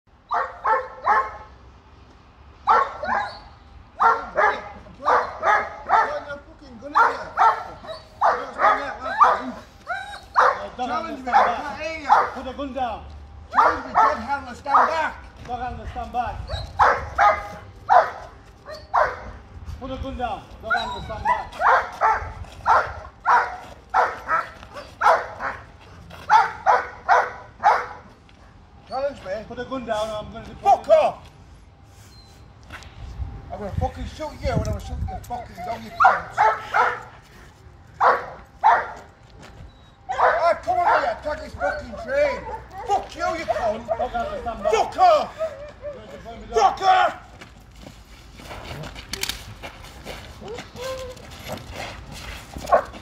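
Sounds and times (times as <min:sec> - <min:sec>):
dog barking: 0:00.3 - 0:01.5, 0:02.7 - 0:03.4, 0:04.0 - 0:06.3, 0:06.9 - 0:12.4, 0:13.5 - 0:15.2, 0:16.8 - 0:19.4, 0:20.7 - 0:25.7, 0:26.3 - 0:28.1, 0:36.0 - 0:37.1, 0:38.0 - 0:39.1, 0:40.1 - 0:44.0, 0:52.7 - 0:53.0.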